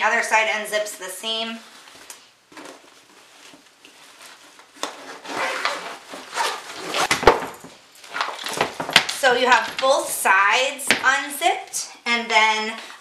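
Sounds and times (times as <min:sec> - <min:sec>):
fabric rustling: 0:01.2 - 0:10.2
zipper being pulled open: 0:04.9 - 0:07.1.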